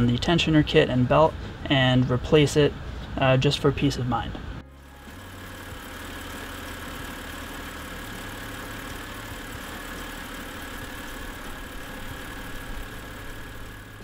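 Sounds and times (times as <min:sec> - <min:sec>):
car engine idling: 0:04.6 - 0:14.0.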